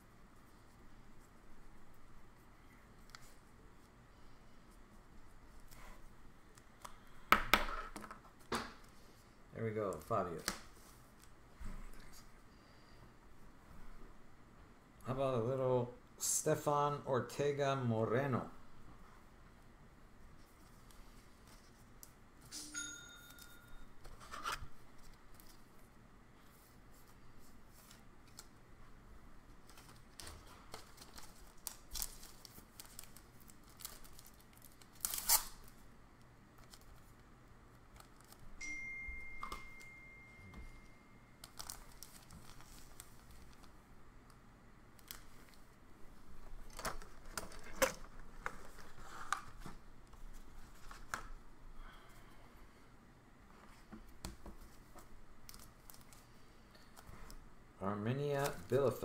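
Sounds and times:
plastic rustling and crinkling: 29.5s - 35.8s, 41.4s - 43.8s, 54.5s - 57.4s
faint high beep: 38.6s - 41.3s.

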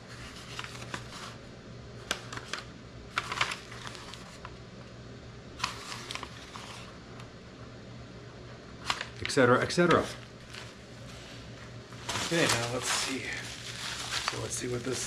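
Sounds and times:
paper rustling and crinkling: 0.0s - 4.6s, 5.6s - 7.0s, 8.8s - 15.0s
low steady hum: 0.0s - 15.0s.

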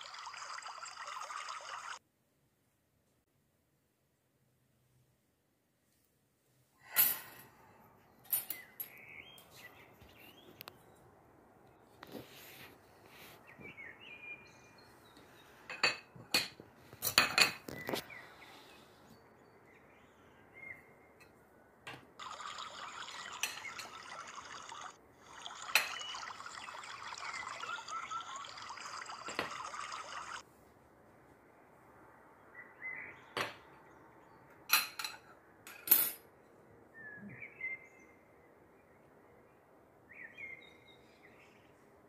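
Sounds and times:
tea pouring into glass: 0.0s - 2.0s, 22.2s - 30.4s.

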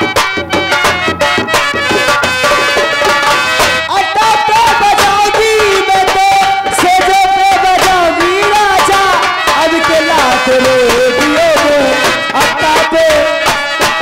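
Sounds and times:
drumming: 0.0s - 14.0s
folk melody: 0.0s - 14.0s
person singing long wavering notes: 3.9s - 13.4s.

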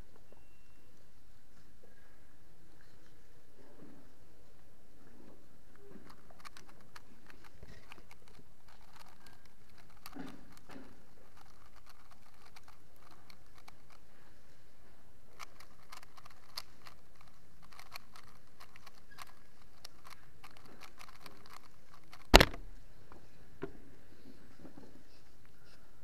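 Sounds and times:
plastic puzzle cube clicking: 6.1s - 14.0s, 15.4s - 22.6s.

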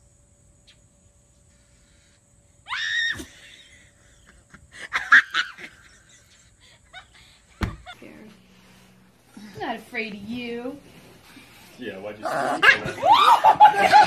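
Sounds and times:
sharp shrieks: 2.6s - 3.5s
knocks: 7.6s - 7.9s
thump: 7.6s - 7.9s.

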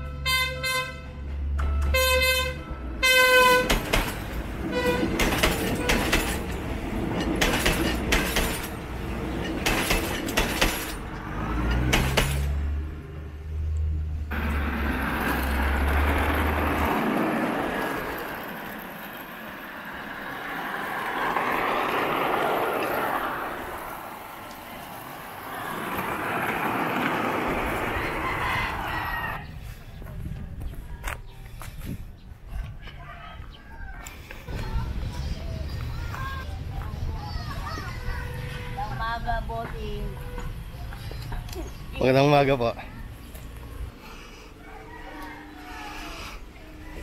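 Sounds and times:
train horn toots: 0.0s - 3.8s, 4.6s - 5.2s
deep train rumble: 0.1s - 32.8s
train wheels clattering on track: 3.5s - 12.6s.

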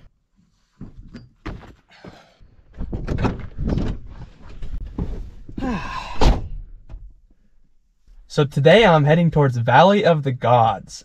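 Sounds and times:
knocks and thumps on van: 0.8s - 7.2s
loud thud: 6.0s - 7.0s.

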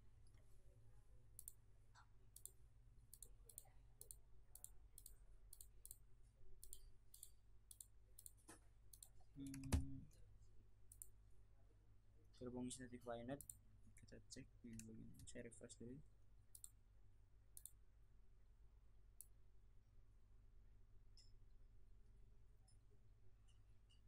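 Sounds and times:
computer mouse clicking: 1.4s - 1.6s, 2.4s - 6.0s, 6.6s - 9.8s, 16.5s - 16.8s, 17.6s - 17.8s.

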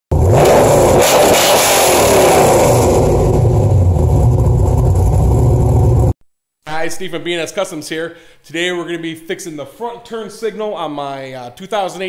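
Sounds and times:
car engine revving: 0.1s - 6.1s.

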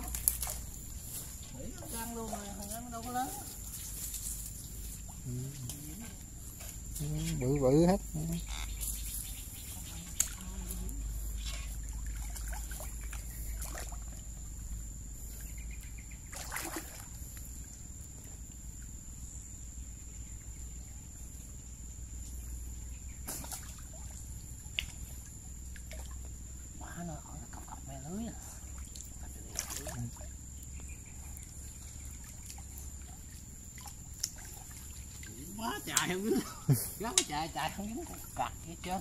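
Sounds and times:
water splashing from swimming: 0.0s - 6.8s, 9.6s - 14.4s, 16.2s - 17.6s, 23.3s - 26.5s, 27.2s - 30.4s, 31.3s - 39.0s.

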